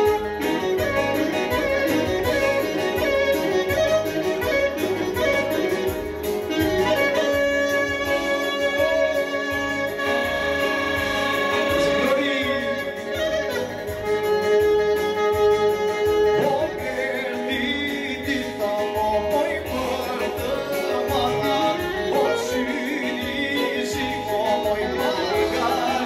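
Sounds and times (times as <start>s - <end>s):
clarinet melody: 0.0s - 26.0s
keyboard accompaniment with beat: 0.0s - 26.0s.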